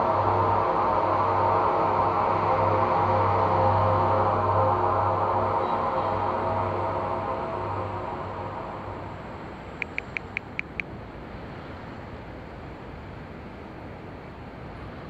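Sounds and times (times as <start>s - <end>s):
soft ambient music: 0.0s - 10.4s
distant city traffic hiss: 0.0s - 15.0s
short high-pitched beeps: 9.8s - 10.8s.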